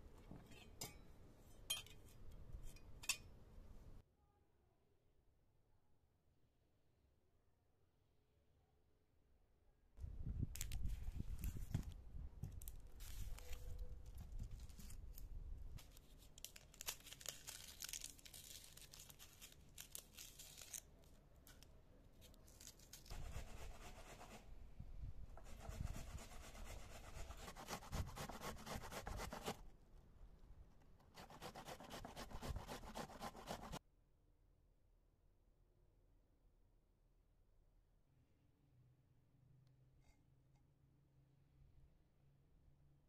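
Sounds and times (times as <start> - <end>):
onion skin crackling and tearing: 16.0 - 21.6.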